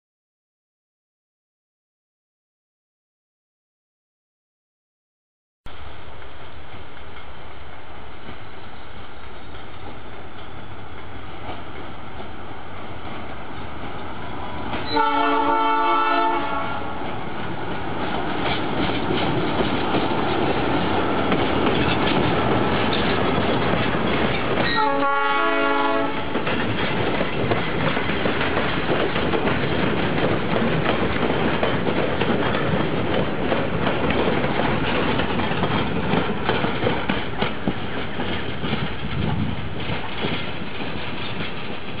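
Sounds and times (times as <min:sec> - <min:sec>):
train wheels clicking on rails: 0:05.8 - 0:42.0
locomotive horn chord: 0:14.8 - 0:17.0, 0:24.7 - 0:26.3.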